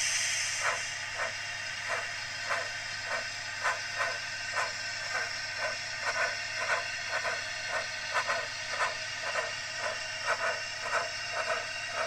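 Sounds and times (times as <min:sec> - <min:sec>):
steady hiss: 0:00.0 - 0:02.0
steam locomotive chuffing from speaker: 0:00.0 - 0:12.0.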